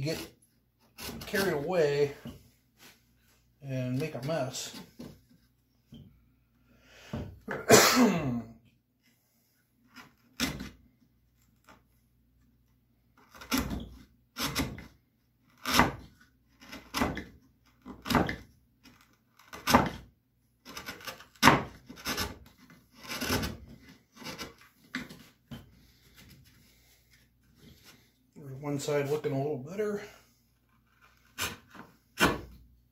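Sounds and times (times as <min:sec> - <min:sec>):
wood scraping strokes: 0:00.0 - 0:05.6.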